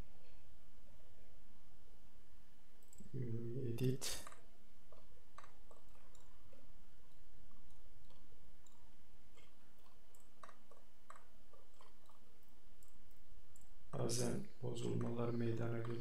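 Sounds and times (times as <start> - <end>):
low background hum: 0.0 - 16.0
computer mouse clicks: 2.8 - 3.1, 4.2 - 14.1.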